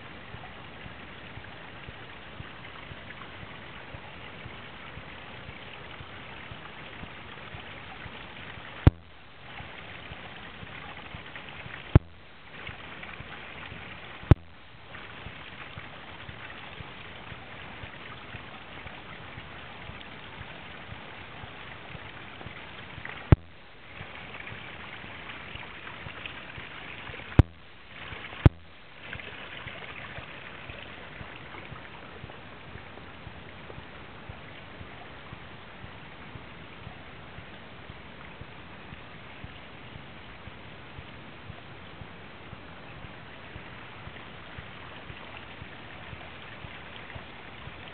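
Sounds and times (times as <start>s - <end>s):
waterfall splashing into pool: 0.0s - 33.8s.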